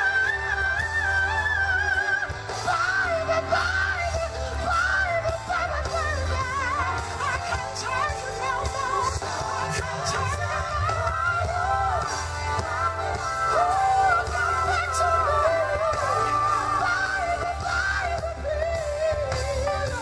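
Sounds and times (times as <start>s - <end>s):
live band bass and drums: 0.0s - 20.0s.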